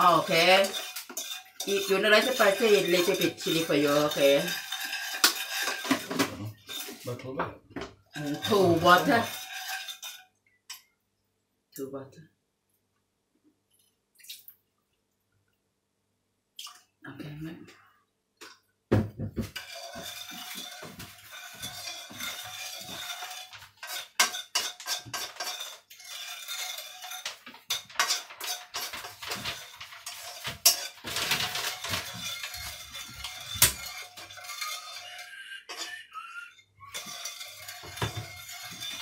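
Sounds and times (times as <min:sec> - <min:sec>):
metal spoon scraping frying pan: 0:00.0 - 0:07.2, 0:08.1 - 0:10.8, 0:19.5 - 0:35.9, 0:36.8 - 0:39.0.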